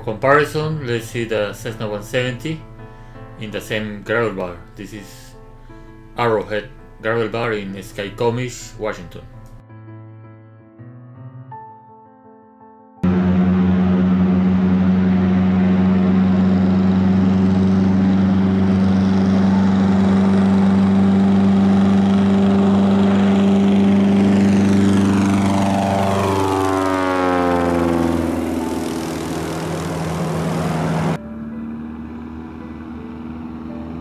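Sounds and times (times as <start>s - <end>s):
propeller plane engine drone: 13.0s - 34.0s.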